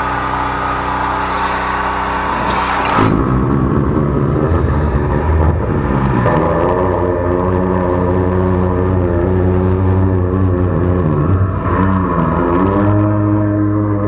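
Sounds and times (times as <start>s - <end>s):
drain jetter engine running: 0.0s - 6.0s
water jet hissing: 1.1s - 3.1s.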